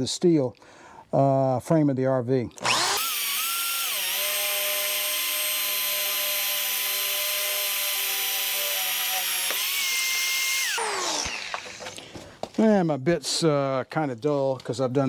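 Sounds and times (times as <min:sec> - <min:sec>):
electric drill boring into steel: 0:02.6 - 0:12.0.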